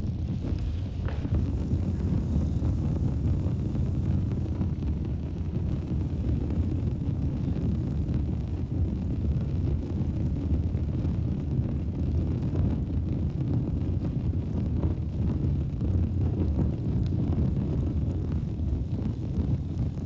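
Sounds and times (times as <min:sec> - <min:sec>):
steady low rumble: 0:00.0 - 0:20.0.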